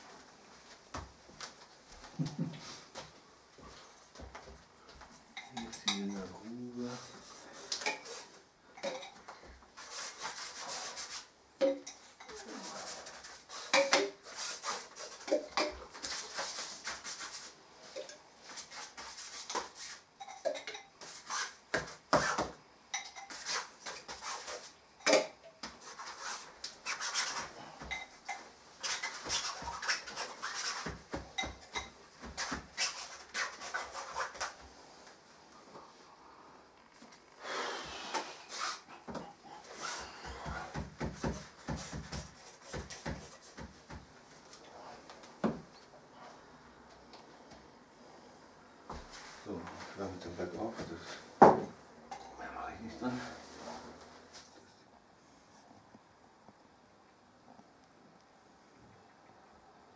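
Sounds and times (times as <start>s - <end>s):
paint pots and tools clicking: 5.4s - 6.3s, 7.7s - 9.5s, 20.2s - 21.1s
brushes scraping on paper: 9.8s - 11.3s, 12.2s - 20.4s, 23.2s - 24.8s, 25.8s - 28.1s, 28.8s - 31.5s, 32.2s - 34.6s, 38.3s - 38.9s
rag rubbing over paper: 9.8s - 11.3s, 12.4s - 17.6s, 23.3s - 24.8s, 25.8s - 27.6s, 28.8s - 31.1s, 32.2s - 34.6s.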